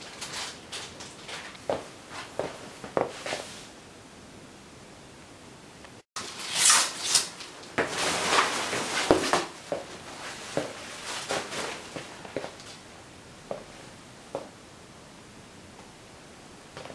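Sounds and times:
plastic bag rustling and crinkling: 0:00.0 - 0:01.6, 0:06.2 - 0:12.8.

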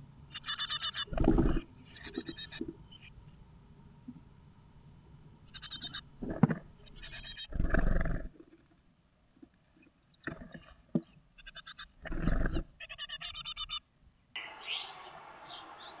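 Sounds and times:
nestlings begging calls: 0:00.3 - 0:03.1, 0:05.5 - 0:06.1, 0:06.8 - 0:07.6, 0:12.8 - 0:13.8.

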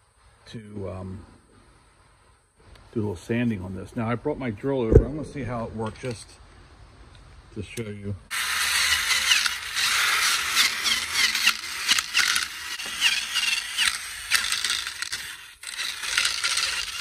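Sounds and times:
drill wire brush stripping paint: 0:08.3 - 0:17.0.

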